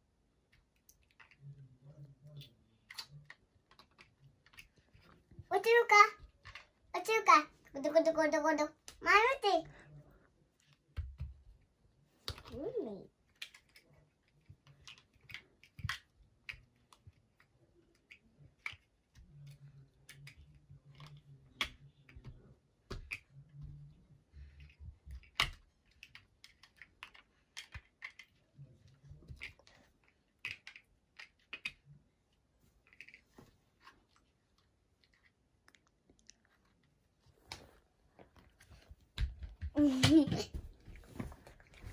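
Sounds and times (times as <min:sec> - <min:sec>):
plastic blocks clicking together: 0:02.3 - 0:05.1, 0:13.3 - 0:23.3, 0:24.6 - 0:28.4, 0:29.2 - 0:31.9.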